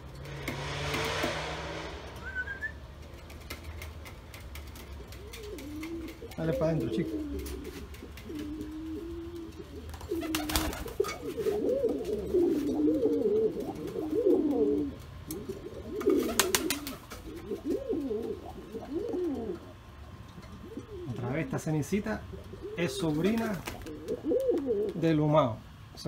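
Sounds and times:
brief sharp noises: 0:00.2 - 0:03.5
pigeons cooing: 0:03.1 - 0:25.2.

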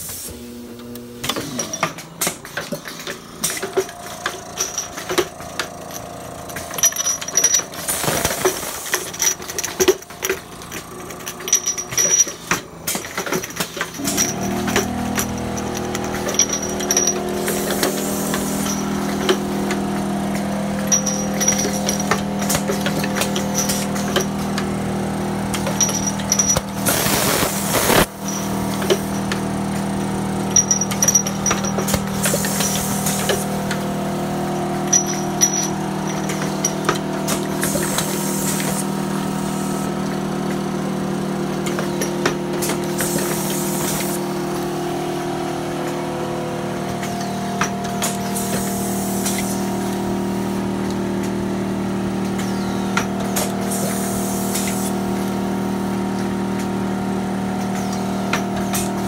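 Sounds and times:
pneumatic arms clicking: 0:00.0 - 0:40.7, 0:41.5 - 0:44.8, 0:46.9 - 0:51.5, 0:52.1 - 0:56.9, 0:57.6 - 0:59.0
machine motors humming: 0:00.0 - 0:59.0
air hissing: 0:17.4 - 0:18.7.

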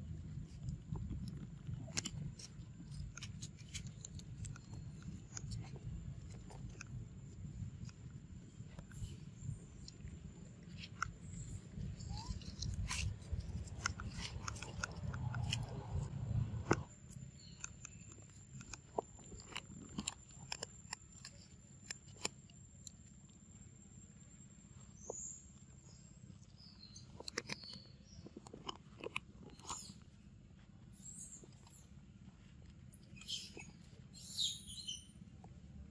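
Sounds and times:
low rumble: 0:04.3 - 0:17.1
faint chirps: 0:20.3 - 0:28.4, 0:33.0 - 0:35.3.

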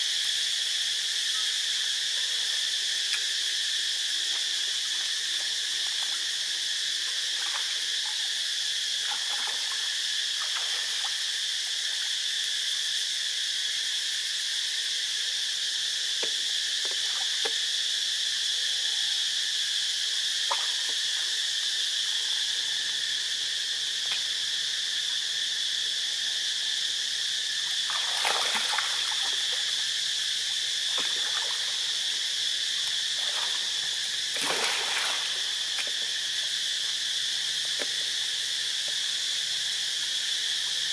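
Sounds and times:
insect chorus drone: 0:00.0 - 0:40.9
splashes in shallow water: 0:27.8 - 0:29.8, 0:30.9 - 0:31.9, 0:33.1 - 0:36.1.

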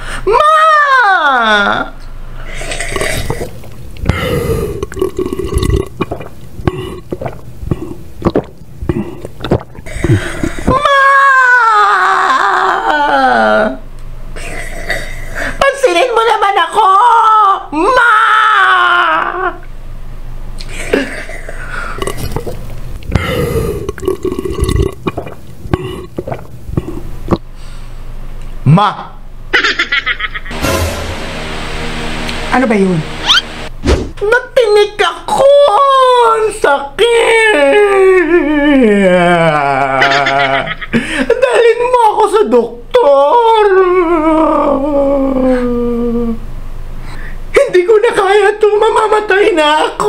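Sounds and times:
person burping: 0:02.6 - 0:10.7, 0:20.9 - 0:27.4
man croaking and gagging: 0:02.7 - 0:10.9, 0:22.0 - 0:27.4.

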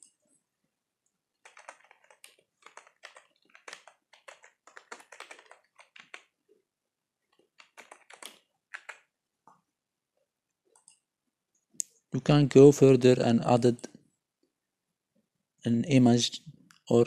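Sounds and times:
faint keyboard typing: 0:01.0 - 0:06.6, 0:07.3 - 0:09.7, 0:10.5 - 0:12.0.

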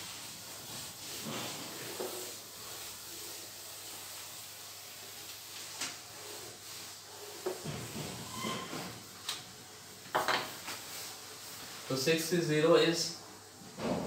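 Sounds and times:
eraser rubbing whiteboard: 0:00.0 - 0:08.8.

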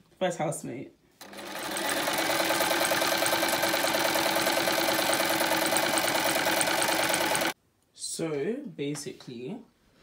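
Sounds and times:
sewing machine stitching: 0:01.2 - 0:07.6.

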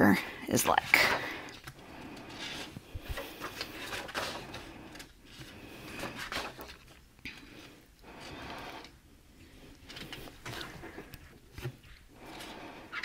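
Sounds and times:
paper pages turning: 0:01.6 - 0:07.0.

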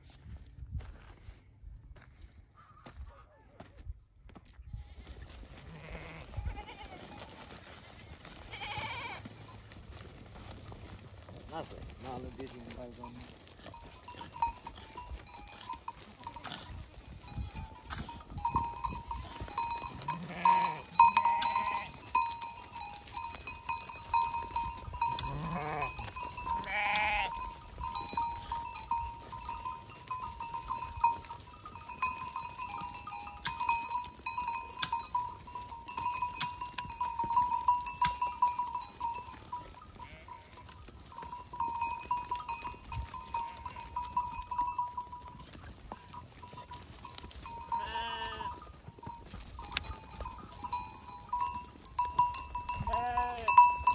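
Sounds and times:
sheep and goats bleating: 0:04.7 - 0:53.9
livestock bells tinkling: 0:05.7 - 0:53.9.

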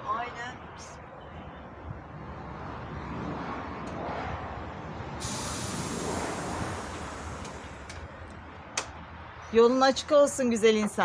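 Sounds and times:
bus engine running: 0:05.1 - 0:09.2
compressed air hissing: 0:05.2 - 0:07.9.

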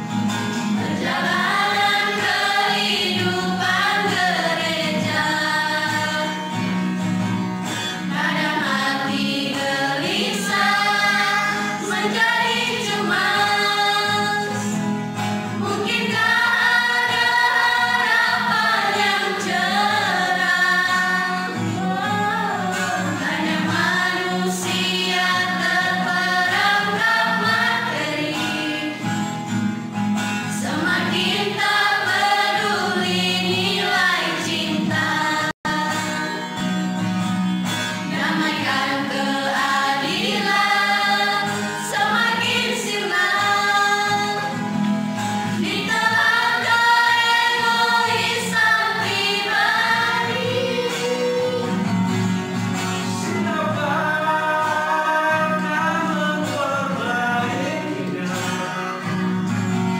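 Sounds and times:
choir singing a hymn: 0:00.5 - 0:06.9, 0:07.9 - 0:29.4, 0:30.4 - 0:36.8, 0:38.0 - 0:44.8, 0:45.4 - 0:52.1.

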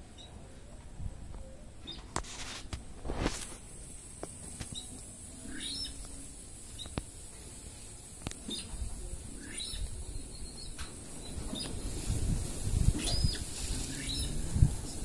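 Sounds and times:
steady high hiss: 0:00.0 - 0:15.0
birds chirping: 0:04.2 - 0:12.0, 0:12.8 - 0:15.0.

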